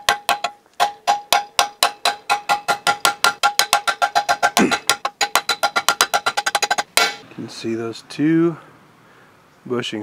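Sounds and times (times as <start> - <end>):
hammer tapping on metal rod: 0.0 - 7.2.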